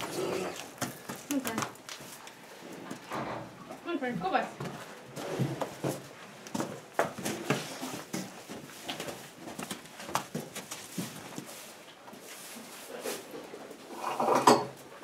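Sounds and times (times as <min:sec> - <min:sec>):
hooves knocking on wooden boards: 0:00.0 - 0:02.3, 0:04.2 - 0:11.5.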